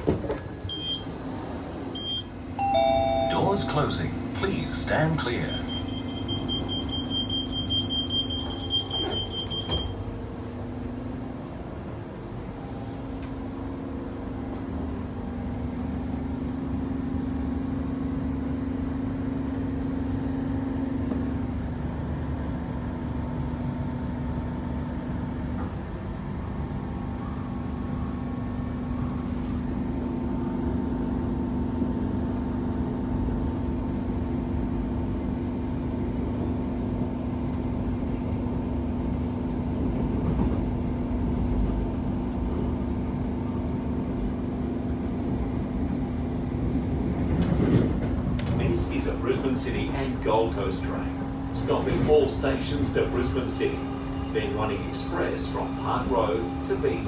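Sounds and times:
electric train hum: 0.0 - 57.0
wheels rumbling on track: 0.0 - 57.0.

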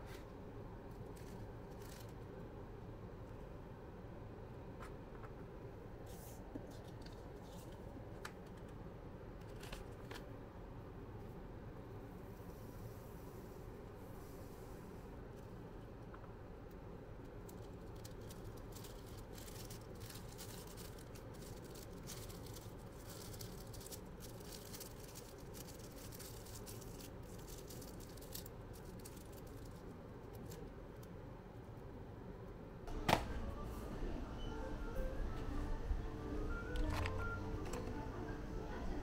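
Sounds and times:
faint background noise: 0.0 - 39.0
music: 32.9 - 39.0.

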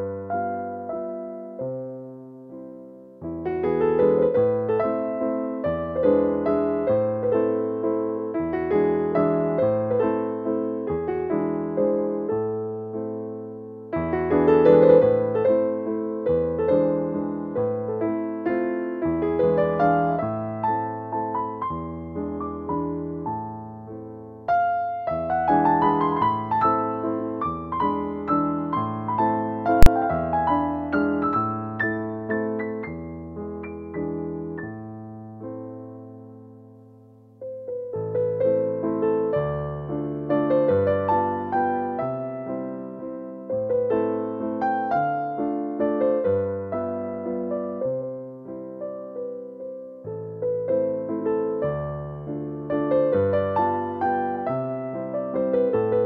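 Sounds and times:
gentle piano tune with bass: 0.0 - 56.0
sharp click: 29.8 - 30.1.

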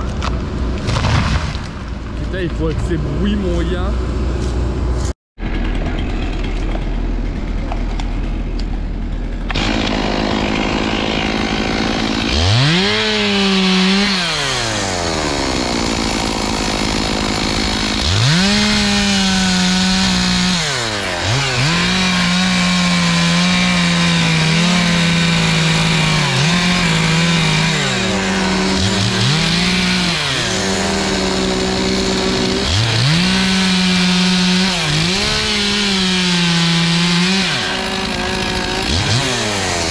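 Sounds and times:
chainsaw cutting wood: 4.0 - 39.9.

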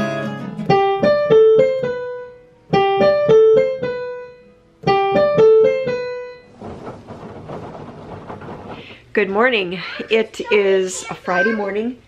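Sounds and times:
digital piano notes: 0.0 - 6.6.

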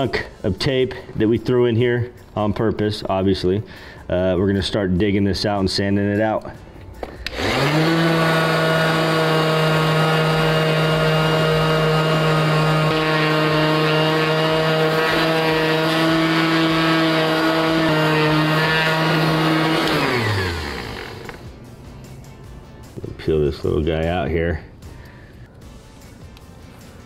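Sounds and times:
orbital sander running: 7.3 - 21.5.

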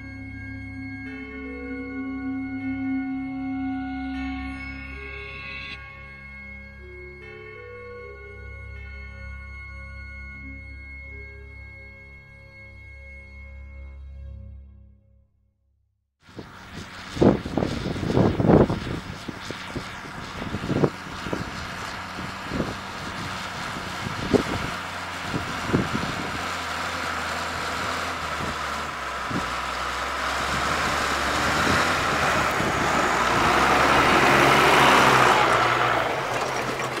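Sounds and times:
plough rushing noise: 16.3 - 37.0
tractor diesel engine under load: 16.4 - 37.0.

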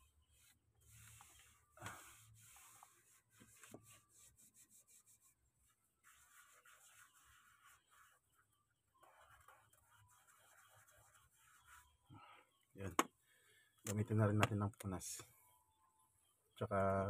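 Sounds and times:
cloth rubbing plastic cover: 0.0 - 12.0.

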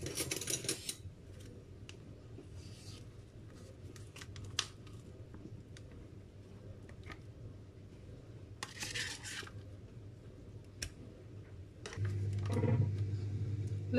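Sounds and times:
steady low hum: 9.6 - 13.9.

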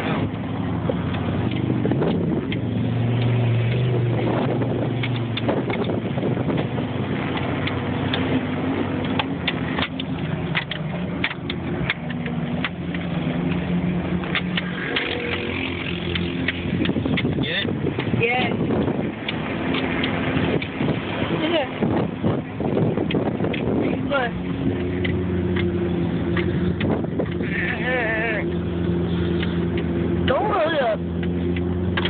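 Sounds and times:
vehicle engine running: 0.0 - 32.0
rattles and knocks in cab: 0.8 - 25.6.

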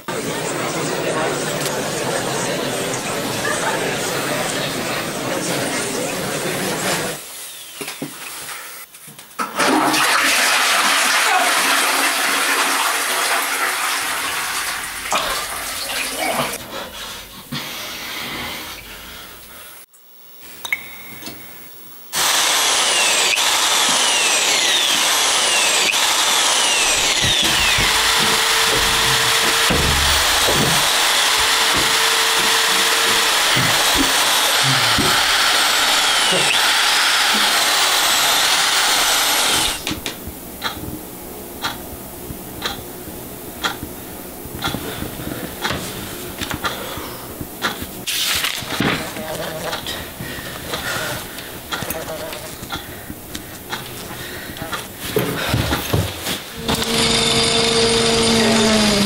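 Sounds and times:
toilet flushing: 9.4 - 16.6.

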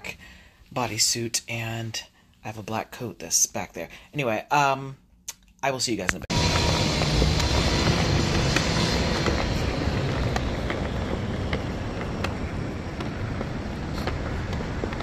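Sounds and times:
vehicle engine rumble: 6.2 - 15.0
street traffic: 6.3 - 15.0.

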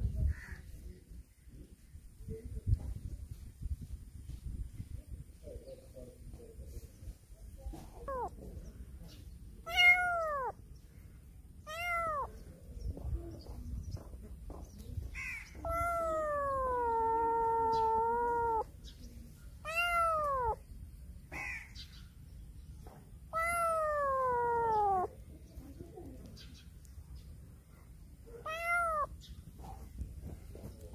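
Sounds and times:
kitten meowing: 7.9 - 8.4, 9.6 - 10.6, 11.6 - 12.4, 15.6 - 18.7, 19.6 - 20.6, 23.3 - 25.2, 28.4 - 29.2.

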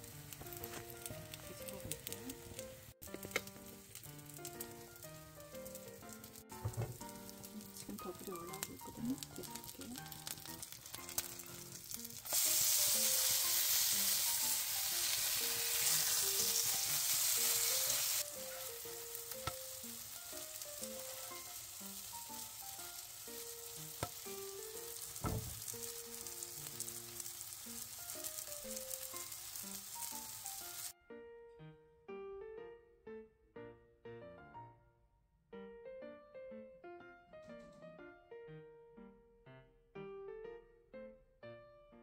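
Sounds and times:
batter sizzling in a frying pan: 0.0 - 31.0.

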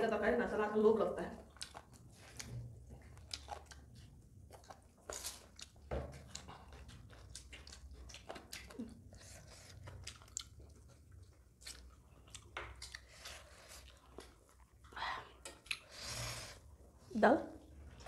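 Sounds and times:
chewing and crunching food: 1.2 - 18.0.

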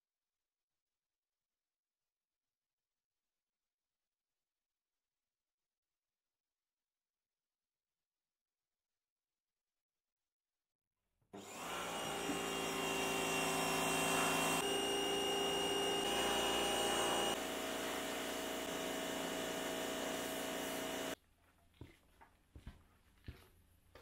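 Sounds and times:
pressure washer spraying: 13.7 - 21.2.

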